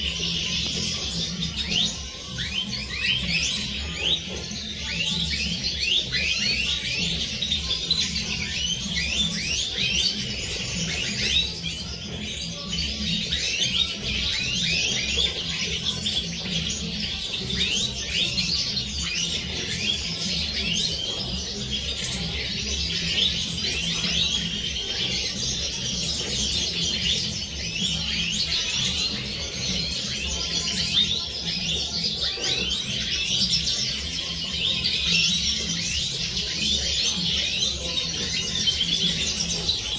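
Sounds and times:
finches twittering and singing: 0.0 - 39.9.

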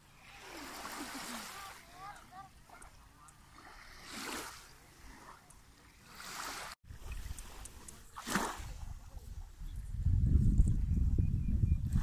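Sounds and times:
small waves lapping on shore: 0.0 - 9.1.

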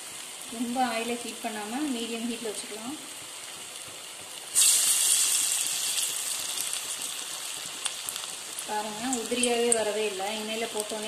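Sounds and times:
patties sizzling in hot oil: 0.0 - 11.0
oil crackling pops: 3.7 - 10.0.

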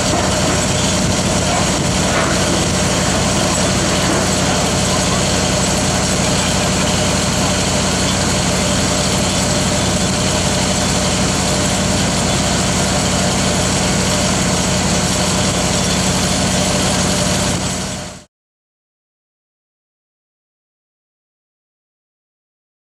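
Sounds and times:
heavy machinery engine idling: 0.0 - 18.3.

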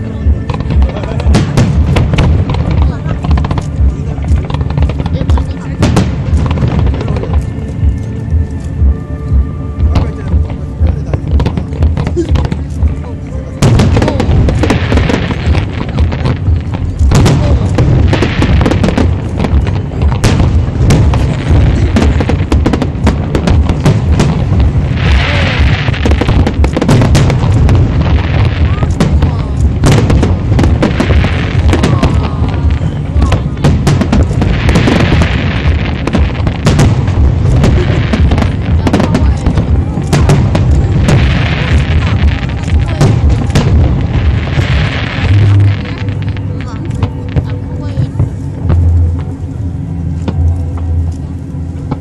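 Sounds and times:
fireworks booms and bangs: 0.0 - 8.8, 9.4 - 51.0
heavy rumble: 0.0 - 52.0
low steady drone: 0.0 - 52.0
fireworks hiss: 13.6 - 49.5.

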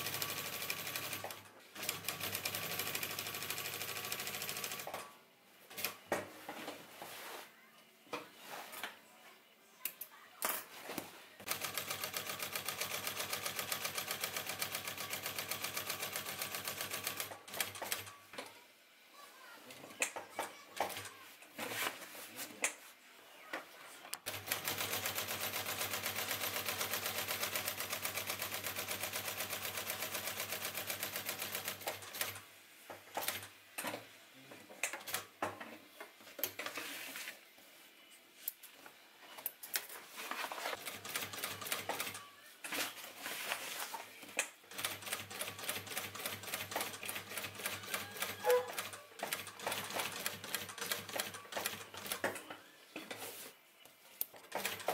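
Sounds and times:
sewing machine stitching: 44.7 - 52.4, 54.4 - 54.9.

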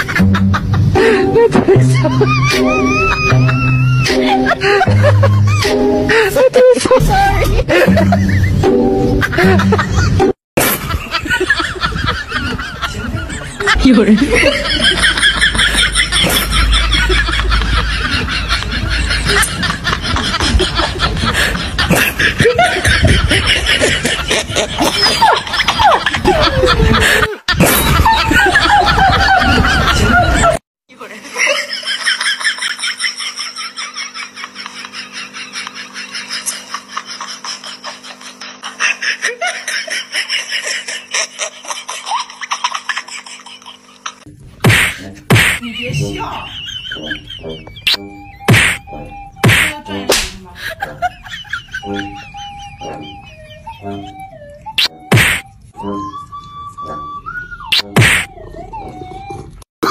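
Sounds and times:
steady low hum: 0.0 - 30.6, 31.3 - 58.4
people laughing: 0.0 - 48.8, 50.4 - 54.4.

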